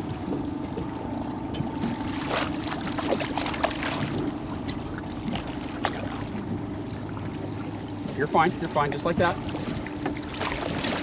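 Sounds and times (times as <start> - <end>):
outboard motor running: 0.0 - 11.0
fish splashing in water: 1.8 - 7.1.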